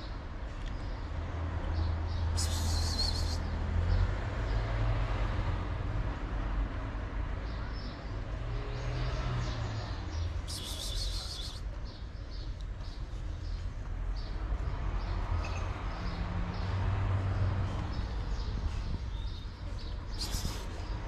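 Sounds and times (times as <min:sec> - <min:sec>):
high-pitched chirping: 0:10.5 - 0:11.6.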